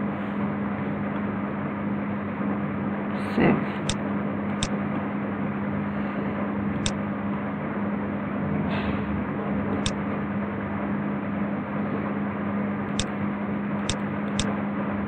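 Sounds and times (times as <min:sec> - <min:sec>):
computer mouse clicks: 0:13.8 - 0:14.5.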